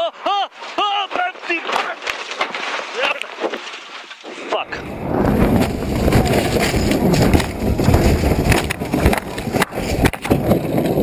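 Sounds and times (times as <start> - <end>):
heavy rumble of car crashing: 4.8 - 11.0.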